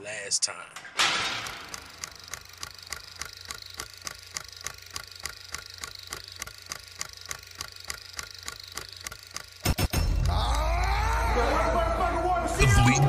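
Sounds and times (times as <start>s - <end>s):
rapid even ticking: 1.4s - 10.6s.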